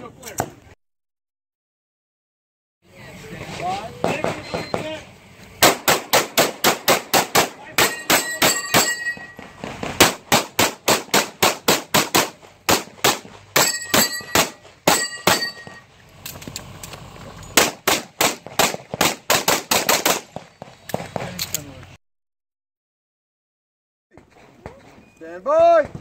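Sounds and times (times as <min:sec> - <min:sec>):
pistol shots in fast strings: 0:05.6 - 0:08.6
steel targets ringing: 0:07.7 - 0:09.6, 0:13.5 - 0:15.9.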